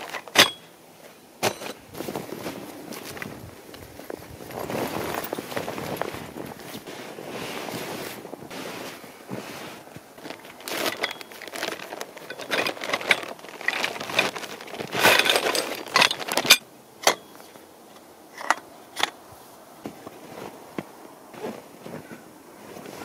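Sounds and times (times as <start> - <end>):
metal tent pole clinks: 0.0 - 0.7, 15.0 - 17.5
tent fabric rustling: 1.7 - 16.6, 19.5 - 23.0.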